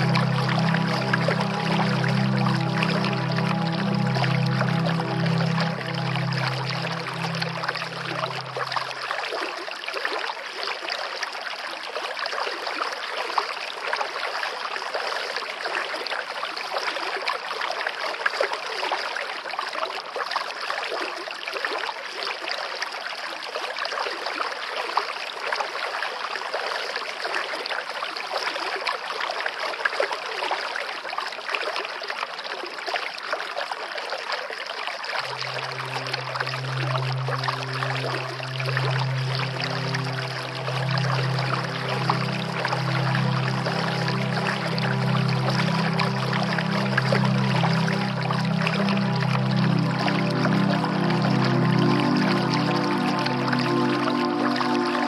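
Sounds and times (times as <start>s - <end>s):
background music: 0.0s - 9.2s, 35.2s - 55.0s
running water: 0.0s - 23.4s, 24.8s - 55.0s.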